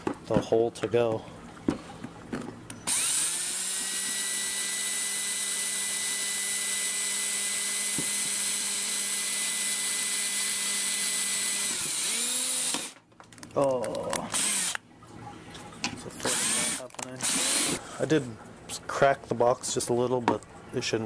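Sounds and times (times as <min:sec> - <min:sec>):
cordless drill boring plastic: 0:02.8 - 0:13.0, 0:14.3 - 0:14.8, 0:16.2 - 0:17.8.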